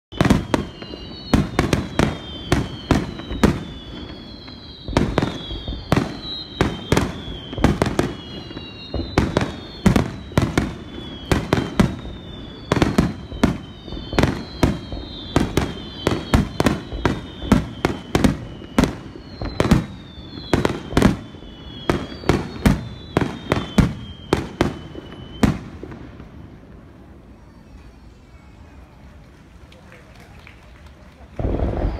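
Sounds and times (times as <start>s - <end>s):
firework whistles gliding down: 0.1s - 29.1s, 31.4s - 31.9s.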